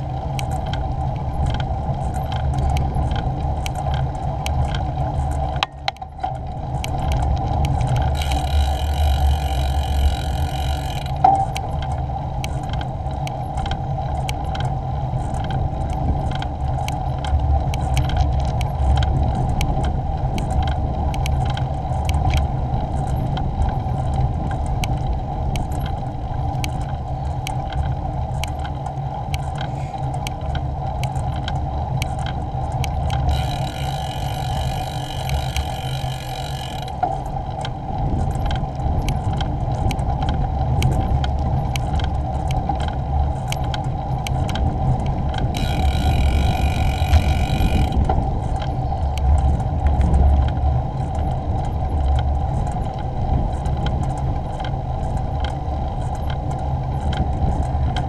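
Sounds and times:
bicycle rattles from bumps: 0.0 - 28.8, 29.5 - 58.0
bicycle tyres on road: 0.0 - 58.0
wind on microphone: 0.0 - 58.0
high buzzing whir: 7.8 - 11.7, 33.1 - 37.4, 45.3 - 50.2.

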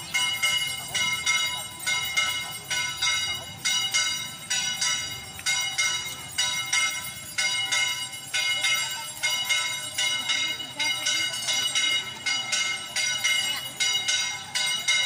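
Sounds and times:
metal bell ringing: 0.0 - 15.0.

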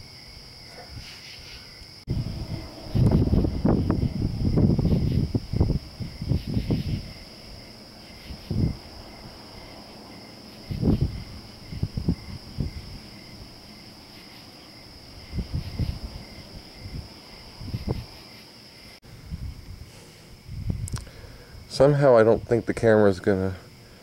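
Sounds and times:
crickets trilling: 0.0 - 24.0
wind rumble on microphone: 1.8 - 18.2, 19.0 - 22.9
low pulsing chirp: 2.1 - 18.2.

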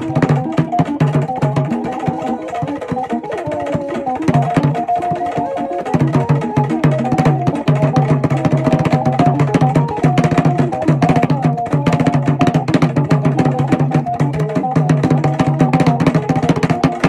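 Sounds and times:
repeating melody line: 0.0 - 16.0
rapid hand drumming: 0.0 - 17.0.

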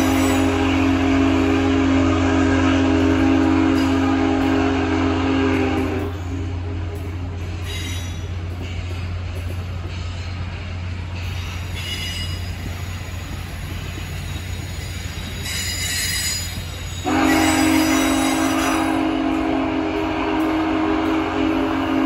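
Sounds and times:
high wheel squeal: 0.0 - 0.8, 7.6 - 8.4, 11.2 - 19.0
train wheels rumbling on rail: 0.0 - 22.0.

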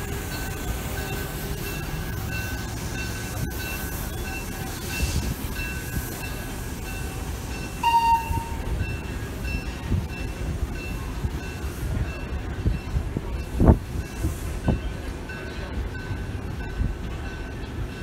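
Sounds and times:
freight train rumbling: 0.0 - 18.0
faint repeating high tones: 7.8 - 8.7.

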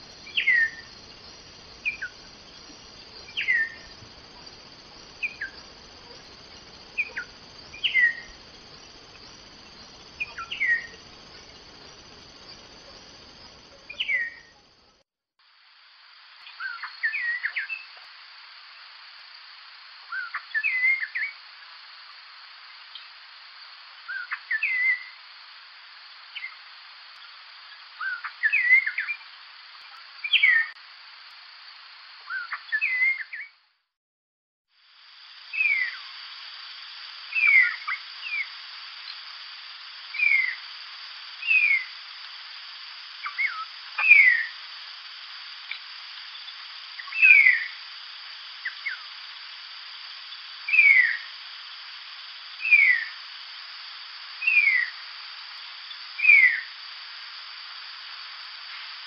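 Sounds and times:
starling chirps: 0.0 - 14.9, 16.4 - 18.1, 20.1 - 22.2, 24.0 - 25.2, 26.0 - 30.8, 32.2 - 33.6, 35.4 - 36.5, 37.3 - 39.3, 40.1 - 42.2, 43.1 - 51.8, 52.4 - 57.0.

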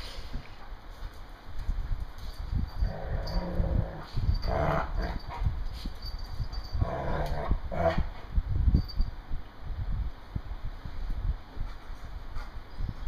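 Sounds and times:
dogs growling: 2.8 - 5.4, 6.7 - 8.1.

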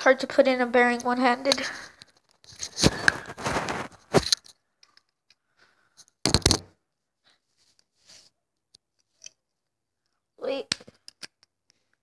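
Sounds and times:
faint rustle: 2.6 - 4.2.

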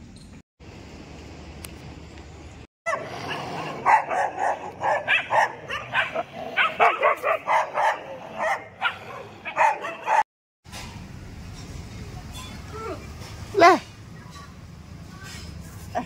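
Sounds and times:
dogs barking: 2.9 - 10.3.

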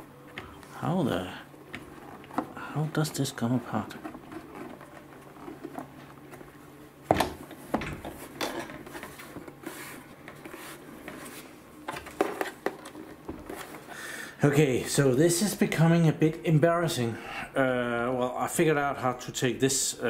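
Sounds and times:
plastic case rubbing and scraping: 1.7 - 6.6.

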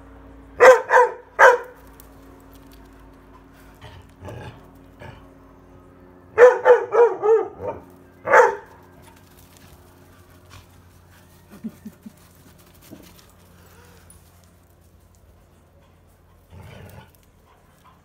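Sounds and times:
dog barking: 0.6 - 1.8, 6.4 - 8.8.

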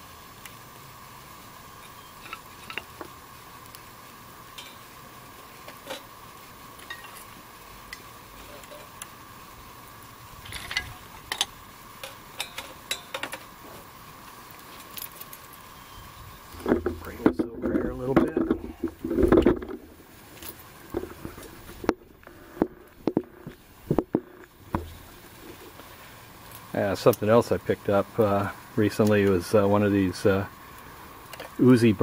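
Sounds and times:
wood fire crackling: 0.0 - 32.0
wooden sticks clicking on metal stove: 4.5 - 5.0, 6.8 - 7.3, 10.4 - 13.6.

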